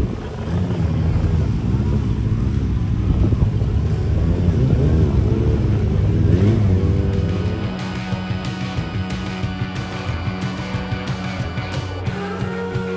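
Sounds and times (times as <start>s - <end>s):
engine revving: 0.0s - 12.9s
music with steady beat: 7.2s - 12.9s.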